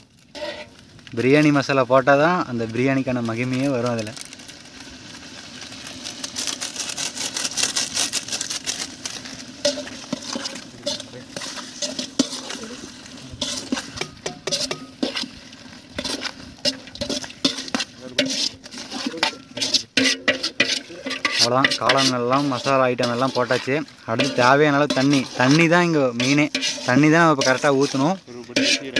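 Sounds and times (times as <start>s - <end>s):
ladle scraping and clinking pot: 0.3s - 0.8s, 6.3s - 28.9s.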